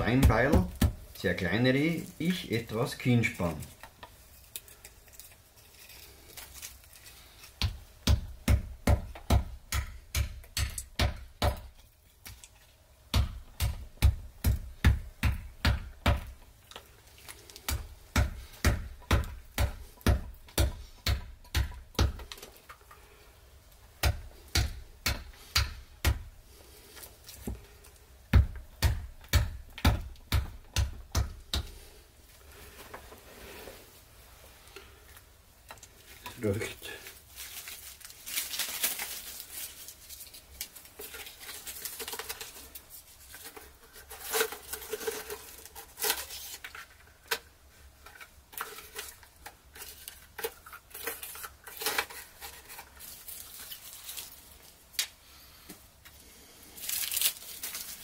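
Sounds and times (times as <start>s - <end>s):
axe chopping wood: 0.0s - 1.1s, 7.6s - 12.4s, 13.1s - 16.4s, 17.6s - 22.4s, 24.0s - 26.3s, 28.3s - 31.8s.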